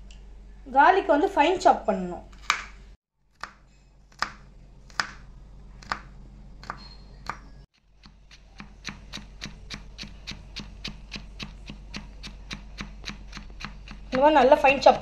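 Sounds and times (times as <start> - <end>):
knife chopping on wooden board: 3.4 - 5.2, 8.0 - 15.0.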